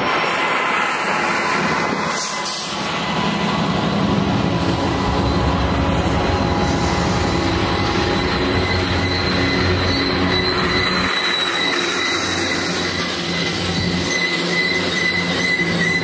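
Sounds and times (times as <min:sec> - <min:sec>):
train wheels rumbling on rails: 0:00.0 - 0:16.0
high wheel squeal: 0:04.5 - 0:16.0.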